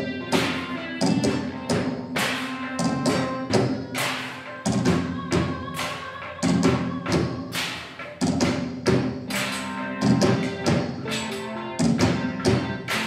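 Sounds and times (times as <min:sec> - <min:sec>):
held pitched notes: 0:09.3 - 0:13.0.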